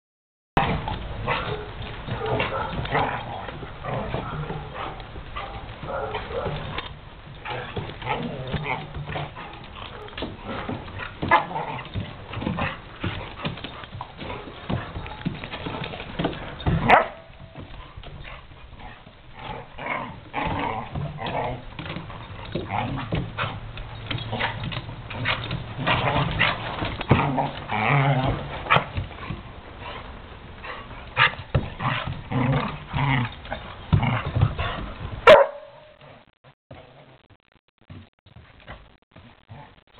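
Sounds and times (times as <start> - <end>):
dogs scuffling on wooden deck: 0.6 - 36.1
dog barking: 1.2 - 2.9, 4.2 - 6.6, 16.8 - 17.2, 35.2 - 36.0.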